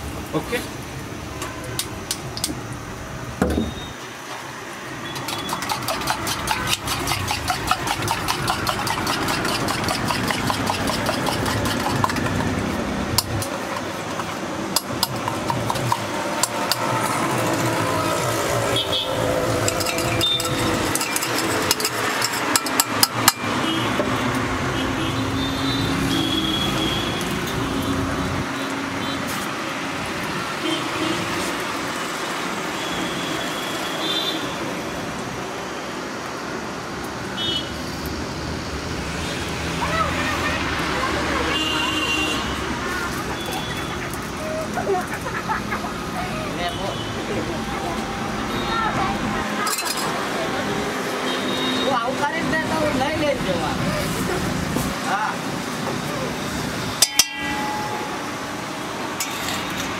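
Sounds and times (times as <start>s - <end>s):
road traffic: 0.0s - 59.9s
spoon clinking against a mug: 19.6s - 23.4s.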